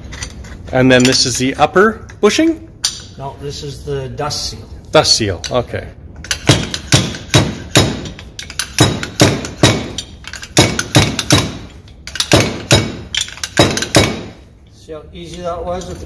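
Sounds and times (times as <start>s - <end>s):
metal-on-metal knocks: 6.2s - 14.4s.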